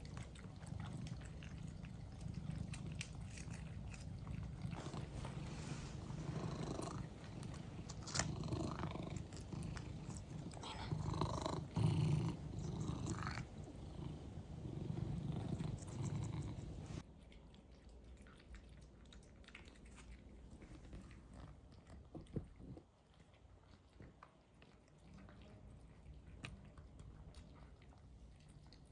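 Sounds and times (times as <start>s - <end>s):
low purring: 0.0s - 17.0s
cats licking and chewing: 0.0s - 28.9s.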